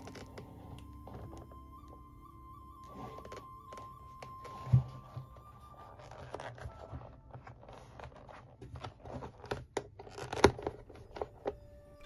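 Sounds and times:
leather rustling and scraping: 0:02.8 - 0:11.2.

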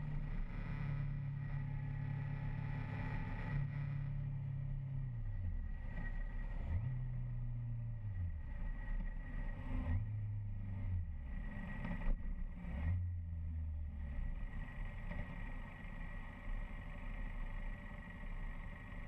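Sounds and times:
faint high whine: 0:00.0 - 0:09.8.

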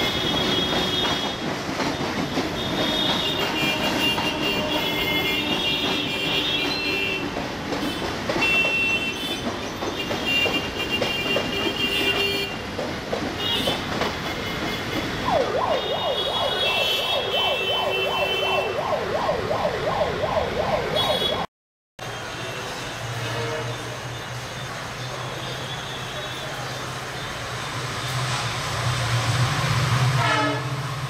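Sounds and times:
train coaches rolling past: 0:00.0 - 0:21.4, 0:22.0 - 0:31.0
emergency siren sweeping: 0:15.2 - 0:21.5.

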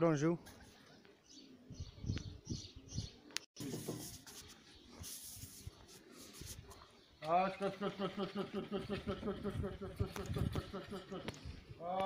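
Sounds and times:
pigeons cooing: 0:00.5 - 0:03.4, 0:06.0 - 0:11.8.

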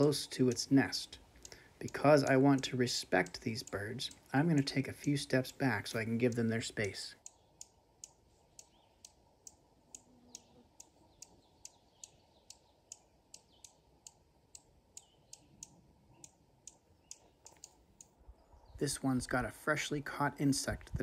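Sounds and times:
bird sharp chipping calls: 0:08.5 - 0:09.2, 0:10.2 - 0:14.2, 0:15.0 - 0:18.8.

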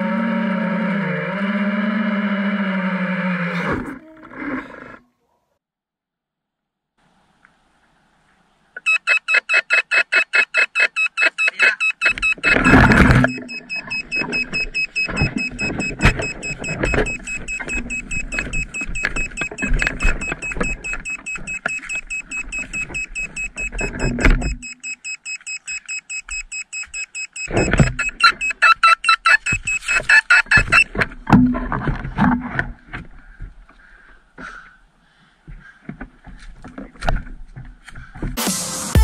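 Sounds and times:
music with fast beat: 0:38.4 - 0:39.0.

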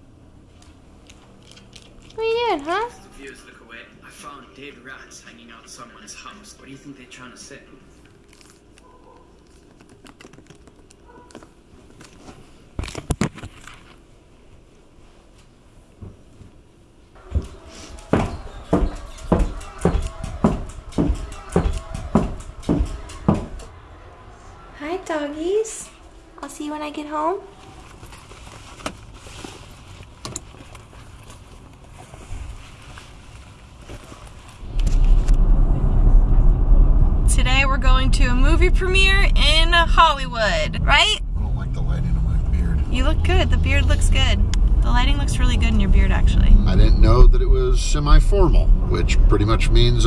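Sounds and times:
clothes rustling and knocks: 0:17.2 - 0:23.7
low steady rumble: 0:34.5 - 0:50.0.

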